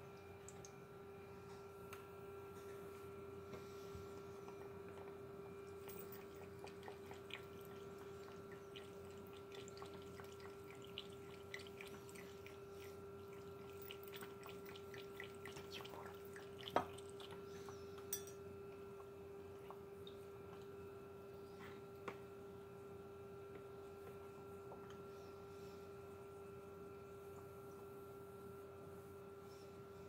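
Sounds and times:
steady low hum: 0.0 - 30.0
cat lapping water: 5.7 - 17.6.

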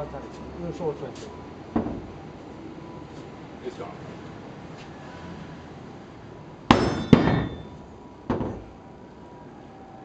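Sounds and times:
metal bar clanging on truck bed: 6.7 - 8.7.

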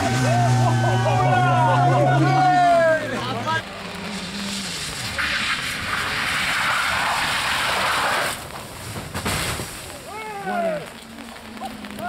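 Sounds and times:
rally car engine: 0.0 - 9.0
tyres hissing through water: 4.1 - 10.2.

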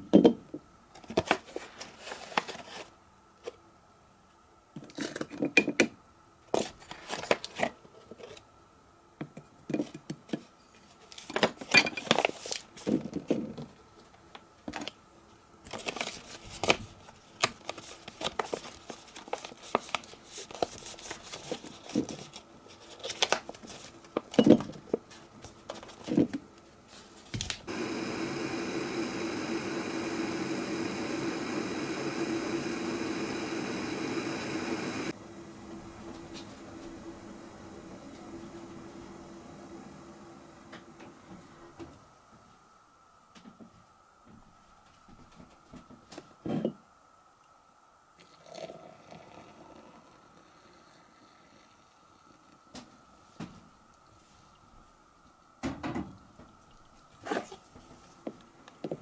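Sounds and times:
gas stove hissing: 27.6 - 42.2.

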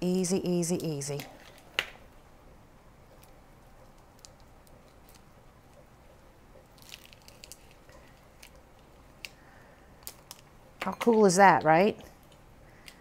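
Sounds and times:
shrimp shell cracking: 3.2 - 5.3, 6.7 - 9.4, 10.0 - 10.5.

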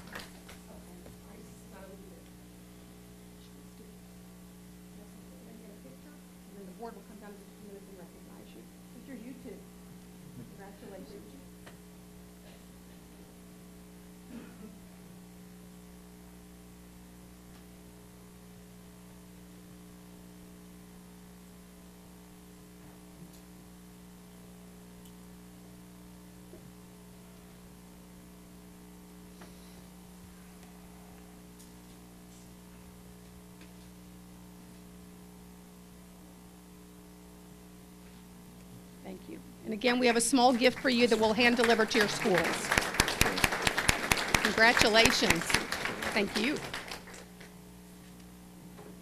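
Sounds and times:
faint mains hum: 0.0 - 49.0.

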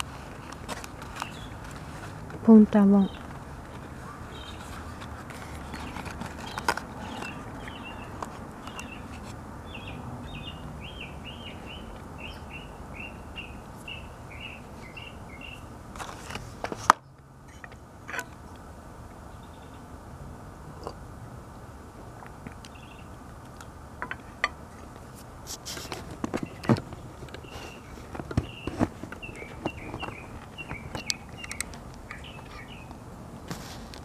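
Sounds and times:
outdoor background hiss: 0.0 - 34.0
songbird chirping: 2.4 - 15.7, 19.2 - 19.9, 22.6 - 23.2, 26.3 - 33.0
sharp clicks: 30.7 - 32.2.

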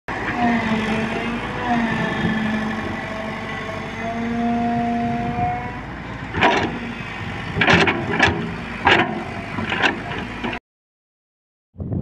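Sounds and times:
excavator running under load: 0.1 - 10.6
loud metallic knocks: 6.3 - 6.9, 7.5 - 10.6.

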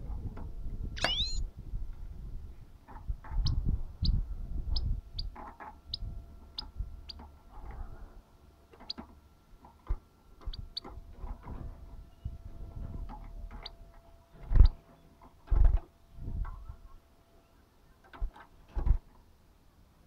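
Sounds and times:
goldfinch high tick notes: 1.0 - 1.4.

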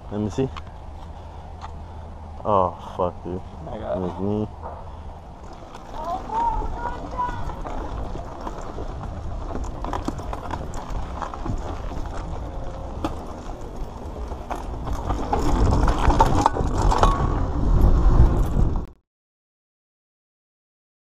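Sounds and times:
bike tyre rumble on dirt: 3.9 - 19.0
bike rattling over bumps: 4.6 - 18.9.

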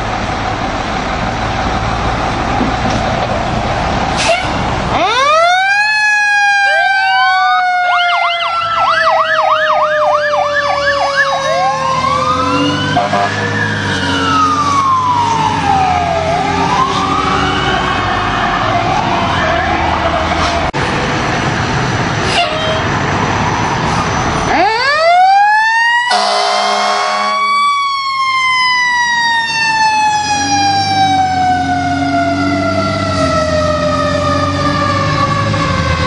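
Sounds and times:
siren yelping and wailing: 4.9 - 20.6, 23.6 - 36.0
siren sweeping in pitch: 5.0 - 20.4, 23.6 - 36.0.

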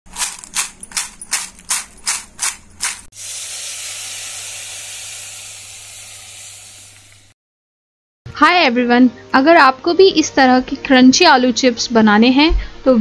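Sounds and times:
chips rattling in a glass bowl: 0.1 - 3.1
steam-like hiss: 3.2 - 7.4.

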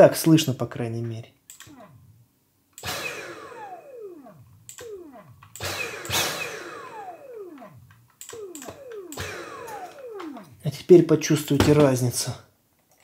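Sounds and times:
handheld vacuum motor bursts: 2.8 - 10.6.

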